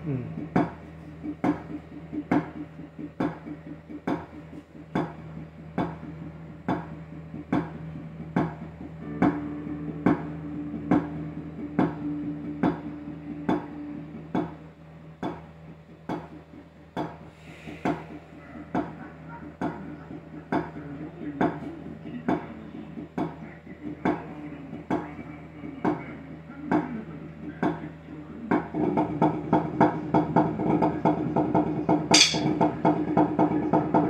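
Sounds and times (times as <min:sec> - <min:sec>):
steady low hum: 0:00.0 - 0:19.2
drumsticks on practice pads: 0:32.1 - 0:32.6.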